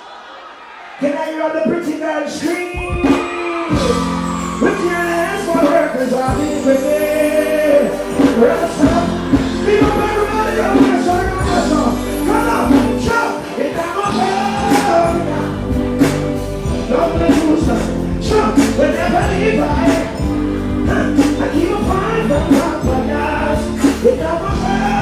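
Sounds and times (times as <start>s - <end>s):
backing music with steady beat: 1.2s - 25.0s
man singing into a microphone: 4.6s - 15.8s, 16.8s - 25.0s.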